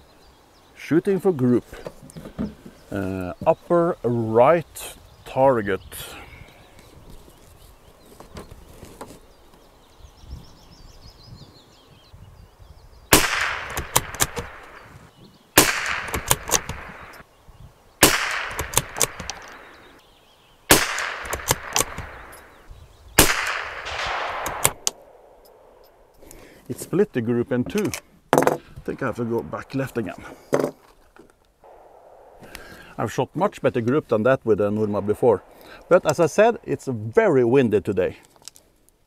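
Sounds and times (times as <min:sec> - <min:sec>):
rifle shots: 0:13.1 - 0:14.9, 0:15.6 - 0:17.2, 0:18.0 - 0:19.8, 0:20.7 - 0:22.6, 0:23.2 - 0:25.8, 0:31.7 - 0:32.8
rifle bolt clicks: 0:13.3 - 0:14.8, 0:15.7 - 0:17.2, 0:18.1 - 0:19.6, 0:20.8 - 0:22.5, 0:23.2 - 0:26.0.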